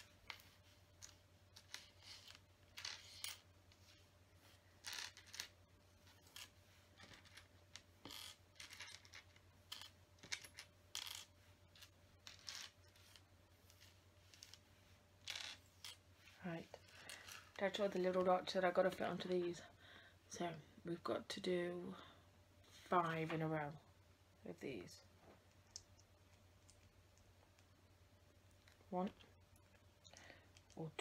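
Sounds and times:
plastic pieces clicking and clattering: 6.2s - 13.2s.

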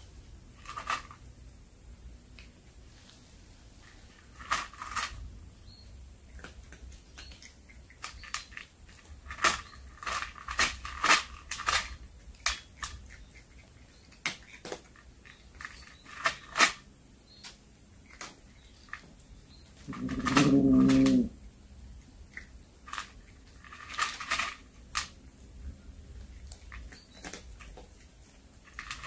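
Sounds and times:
cat chewing with crunching clicks: 11.6s - 15.3s.

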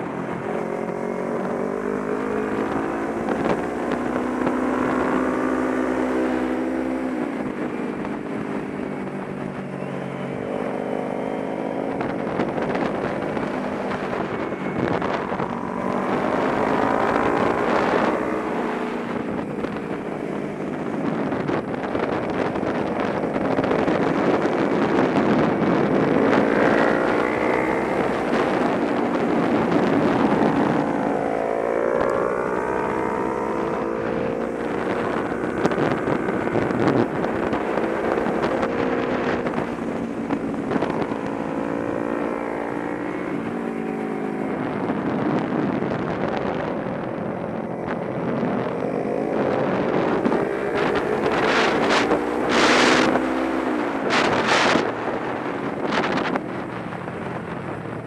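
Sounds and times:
motorcycle engine revving: 0.0s - 58.0s
wind rush on microphone: 0.0s - 58.0s.

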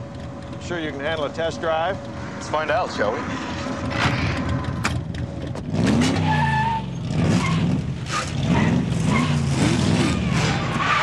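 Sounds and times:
sports car engine revving: 0.0s - 11.0s
tyre squeal: 6.0s - 11.0s.

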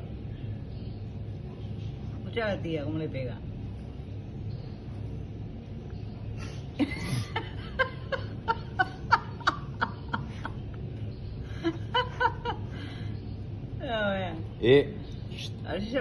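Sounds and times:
person giggling: 6.8s - 10.7s.

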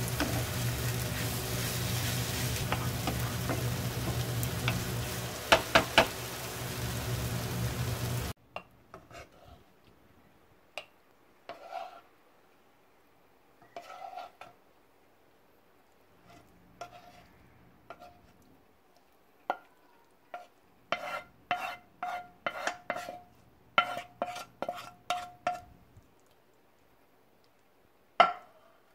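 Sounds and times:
stir-fry sizzling in a frying pan: 0.0s - 8.4s
wooden spatula knocking on pan: 2.6s - 4.9s, 5.5s - 6.2s, 28.2s - 28.5s.

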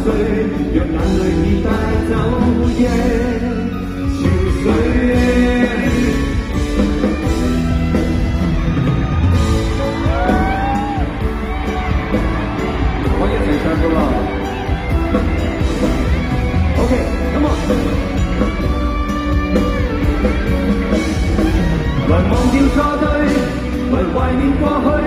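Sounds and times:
person singing: 0.0s - 7.1s, 21.5s - 25.0s
live band playing ballad: 0.0s - 25.0s.

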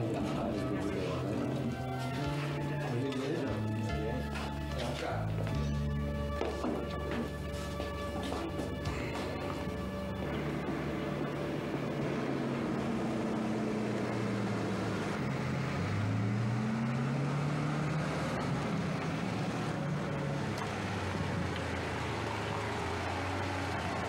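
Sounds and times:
car engine driving slowly: 0.0s - 24.0s.

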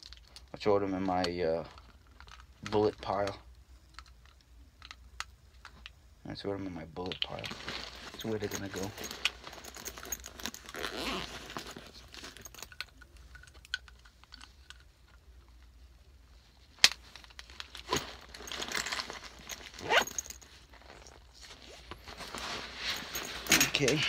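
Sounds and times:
scraping rustles: 7.3s - 12.6s, 17.0s - 24.0s
fabric bag rustling: 7.4s - 12.6s, 17.5s - 24.0s.

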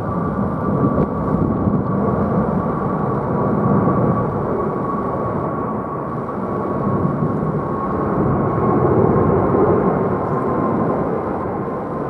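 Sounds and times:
jet engine rumble: 0.0s - 12.0s
thin jet whine: 0.0s - 12.0s.

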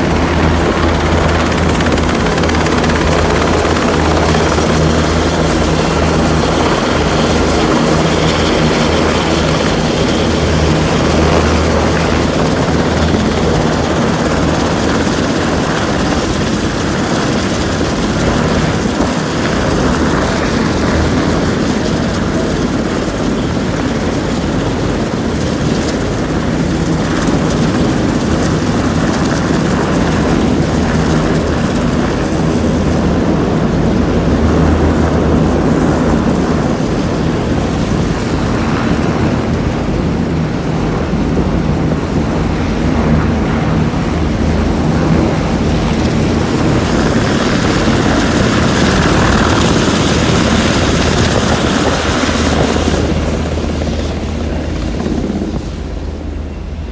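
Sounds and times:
helicopter rotor and engines: 0.0s - 56.9s.

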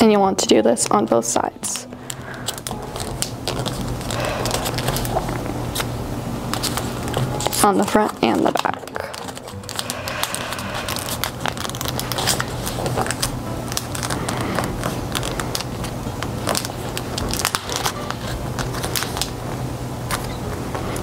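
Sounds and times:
steady low hum: 1.9s - 7.6s, 8.9s - 16.4s
paper crinkling and crackling: 2.0s - 5.9s, 6.5s - 21.0s.

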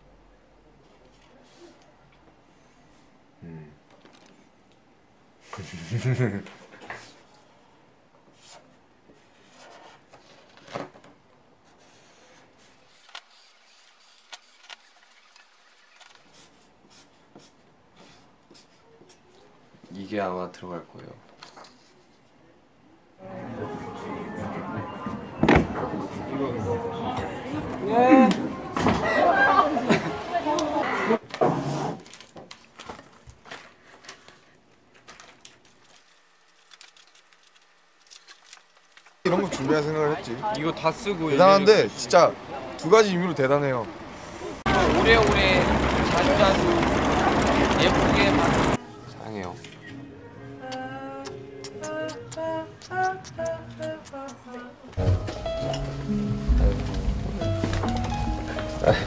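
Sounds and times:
snack wrappers crinkling: 34.9s - 39.2s.

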